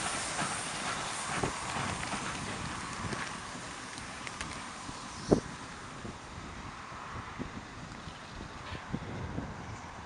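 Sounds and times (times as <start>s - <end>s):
train rumble: 0.0s - 10.0s
wind noise on microphone: 1.2s - 10.0s
faint clicks: 3.1s - 4.7s.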